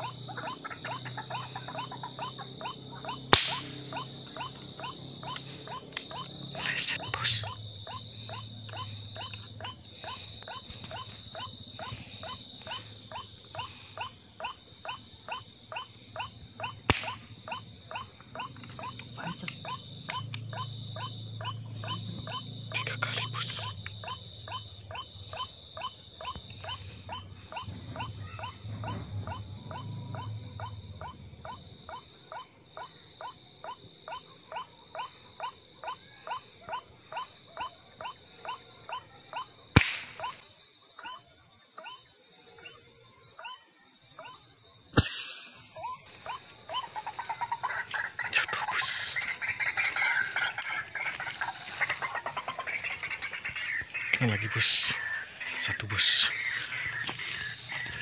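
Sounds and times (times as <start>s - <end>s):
frogs calling: 0.0s - 58.0s
high insect trill: 0.0s - 58.0s
rifle shot: 3.4s - 3.9s, 16.9s - 17.2s, 39.8s - 40.3s, 45.0s - 45.6s.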